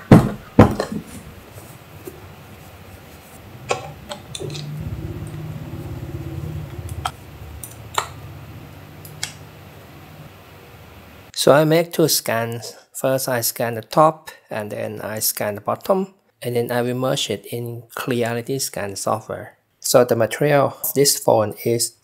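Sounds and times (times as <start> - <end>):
low steady hum: 0.7 - 11.3.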